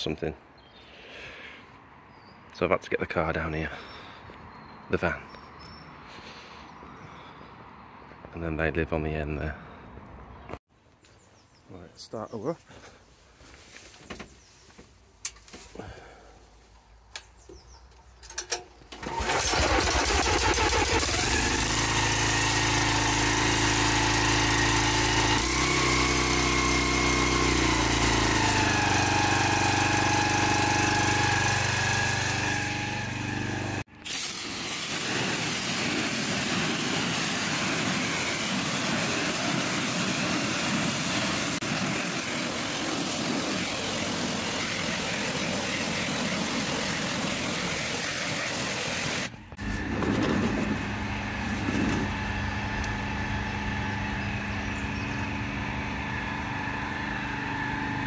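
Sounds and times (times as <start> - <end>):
pressure washer engine running: 19.0 - 58.0
high-pressure water jet hissing: 33.9 - 49.3.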